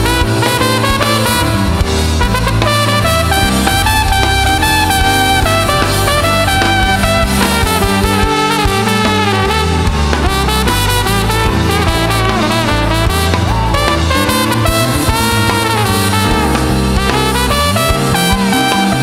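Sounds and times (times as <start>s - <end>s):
drum kit: 0.0s - 19.0s
electric bass guitar: 0.0s - 19.0s
trumpet melody: 0.0s - 19.0s.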